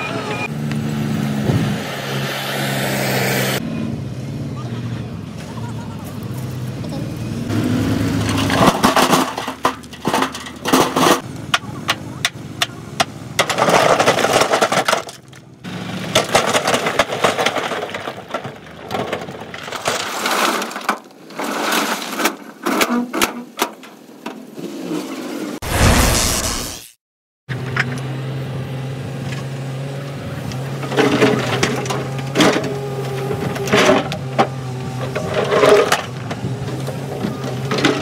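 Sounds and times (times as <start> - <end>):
rocks sliding and crashing: 8.0 - 11.3, 13.4 - 22.9.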